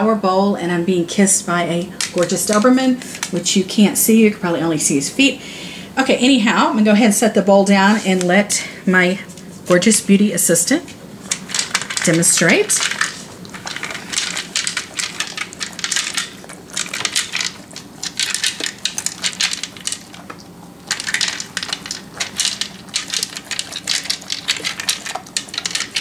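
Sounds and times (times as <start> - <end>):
dog crunching dry kibble: 11.1 - 26.0
kibble clicking against plastic bowl: 11.3 - 26.0.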